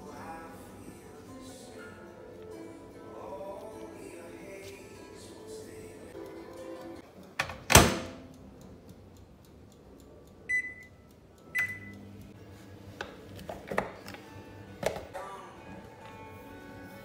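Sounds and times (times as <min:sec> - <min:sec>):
microwave door clunk: 0:07.4 - 0:08.3
short electronic beeps: 0:11.6 - 0:12.0.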